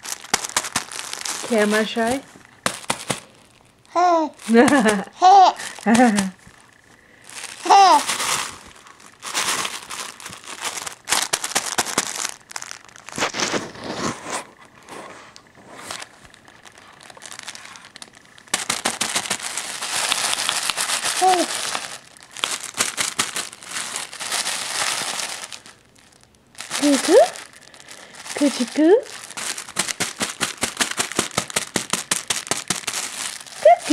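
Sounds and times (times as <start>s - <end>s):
cloth book crinkling: 0.0s - 33.9s
baby vocalisations: 3.9s - 4.4s, 5.2s - 5.7s, 7.6s - 8.1s, 21.2s - 21.5s.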